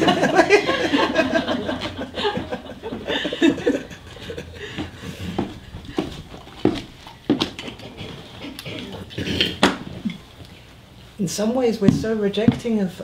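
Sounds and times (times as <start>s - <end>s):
group laughing softly: 0.0s - 6.1s.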